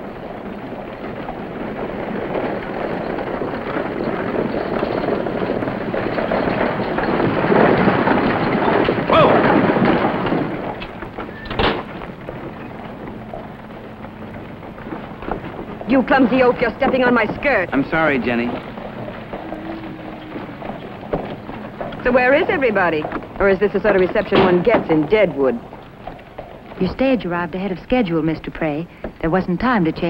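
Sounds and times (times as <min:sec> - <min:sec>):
hooves and wheels rumbling: 0:00.0 - 0:30.0.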